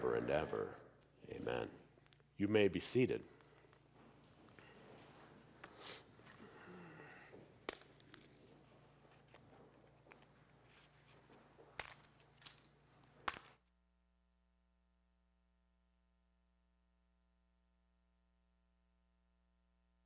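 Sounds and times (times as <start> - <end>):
soft rustling: 7.4 - 13.2.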